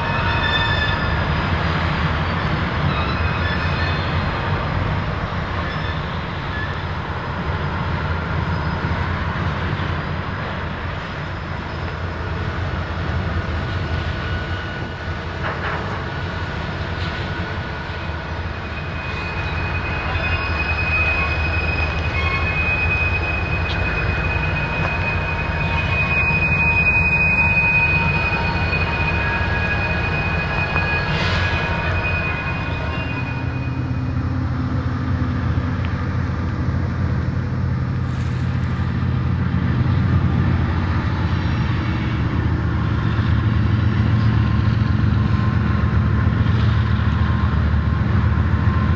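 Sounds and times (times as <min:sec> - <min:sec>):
high-pitched wheel squeal: 0:00.0 - 0:04.5, 0:05.5 - 0:12.5, 0:17.0 - 0:36.1
locomotive engine rumble: 0:00.0 - 0:48.9.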